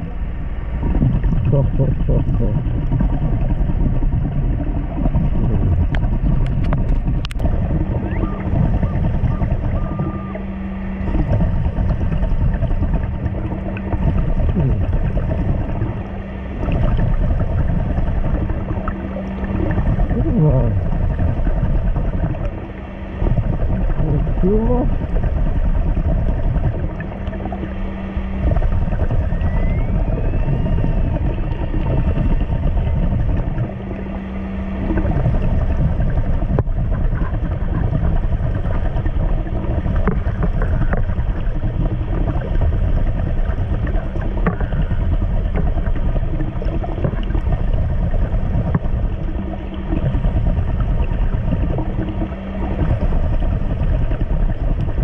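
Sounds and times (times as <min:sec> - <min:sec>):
faint hum: 0:00.0 - 0:55.0
underwater low rumble: 0:00.0 - 0:55.0.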